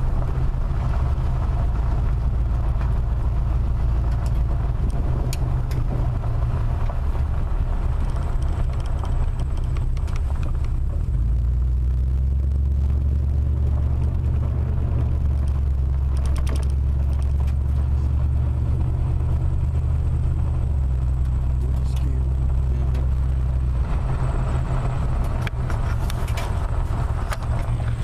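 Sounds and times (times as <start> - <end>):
engine and tyres rumbling: 0.0 - 28.0
faint clicks: 8.0 - 10.8.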